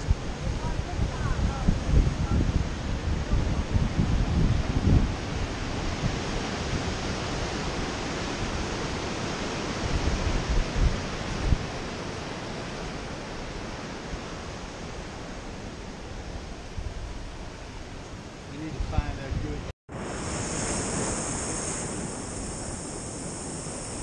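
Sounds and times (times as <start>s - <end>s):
ocean surf breaking: 0.0s - 16.7s, 17.7s - 24.0s
wind rumbling on microphone: 0.0s - 24.0s.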